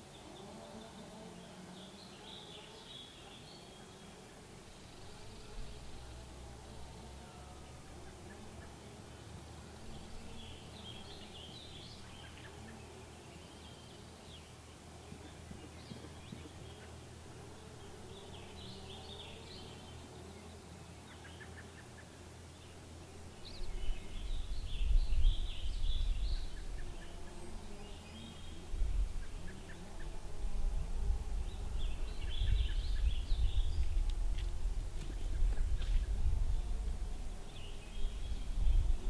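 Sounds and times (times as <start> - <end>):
outdoor ambience: 0.0 - 39.0
songbirds chirping: 0.0 - 39.0
wind buffeting microphone: 23.7 - 26.9, 28.5 - 29.5, 30.3 - 39.0.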